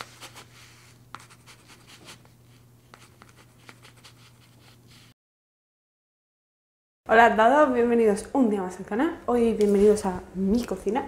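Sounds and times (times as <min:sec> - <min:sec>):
pen scratching on paper: 0:00.0 - 0:05.1.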